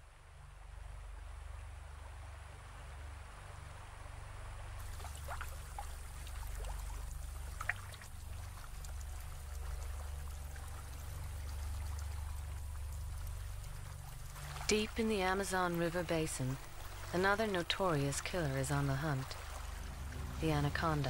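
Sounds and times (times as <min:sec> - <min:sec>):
low rumble: 0:00.0 - 0:21.0
water trickling: 0:04.7 - 0:21.0.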